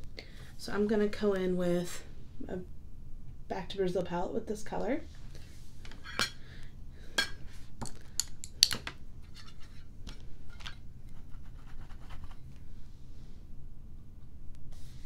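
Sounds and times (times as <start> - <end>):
makeup brush scraping: 10.5 - 12.4.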